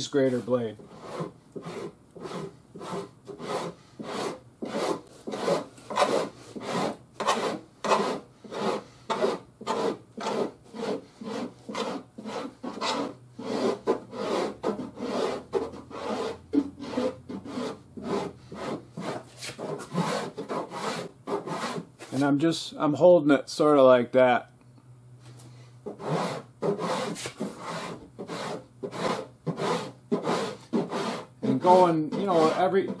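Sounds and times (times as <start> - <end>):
rasp scraping body filler: 0.3 - 22.3, 25.8 - 33.0.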